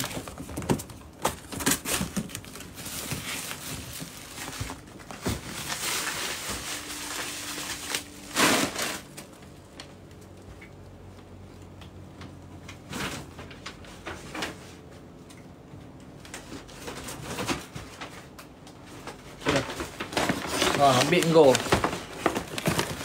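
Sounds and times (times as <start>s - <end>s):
gift packaging rustling: 0.0s - 9.3s, 19.4s - 23.0s.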